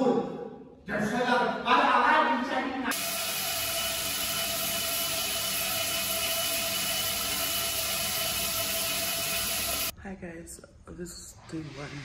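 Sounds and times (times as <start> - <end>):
shower water spraying on tiles: 2.9 - 9.9.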